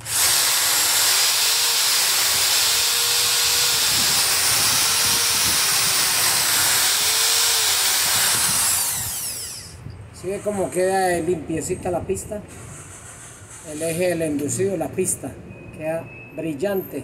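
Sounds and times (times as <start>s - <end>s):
electric drill whining: 0.0s - 9.8s
sandpaper hissing on spinning shaft: 0.0s - 9.8s.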